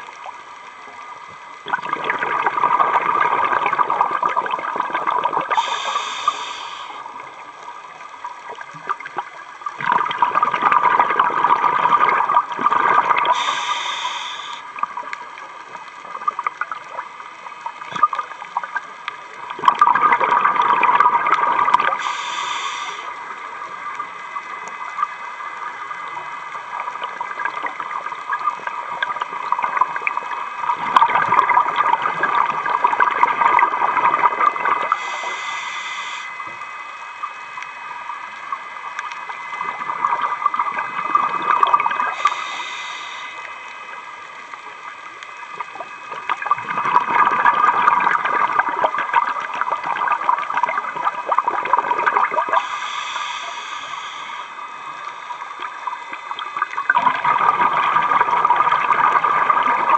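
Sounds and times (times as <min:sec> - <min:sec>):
exhaled bubbles rushing: 0:01.6 - 0:06.4, 0:07.0 - 0:13.6, 0:16.0 - 0:22.1, 0:26.6 - 0:35.3, 0:37.6 - 0:42.6, 0:44.8 - 0:52.7, 0:54.9 - 0:59.9
short high regulator hiss: 0:05.5 - 0:07.4, 0:13.2 - 0:14.8, 0:21.9 - 0:23.2, 0:34.8 - 0:36.6, 0:41.8 - 0:43.7, 0:52.5 - 0:56.7.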